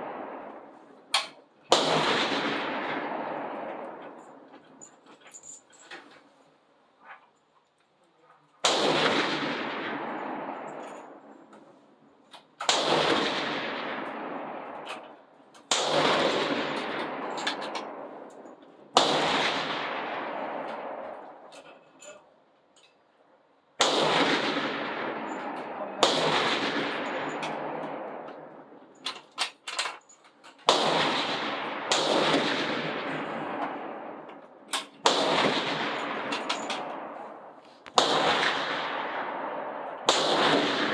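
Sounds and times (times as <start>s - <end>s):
rifle shots echoing: 0.0s - 4.8s, 8.6s - 21.8s, 23.8s - 29.6s, 30.6s - 40.9s.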